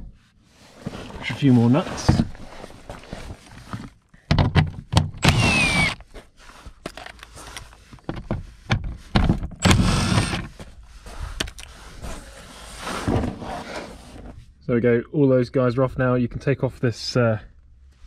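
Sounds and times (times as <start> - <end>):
impact driver whirring: 5.2 - 6.0, 9.6 - 10.5.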